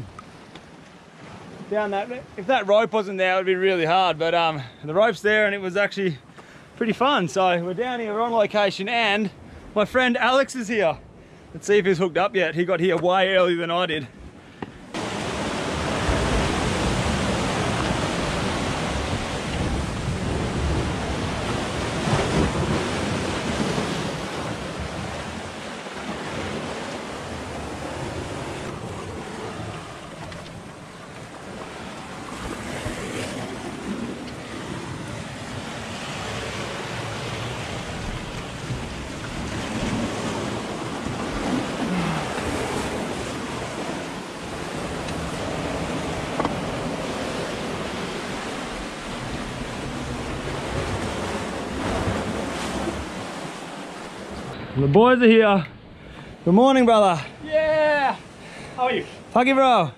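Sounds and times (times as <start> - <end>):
sea surf breaking on rocks: 0.0 - 5.7, 12.9 - 55.6, 56.2 - 59.8
wind on microphone: 15.0 - 53.6.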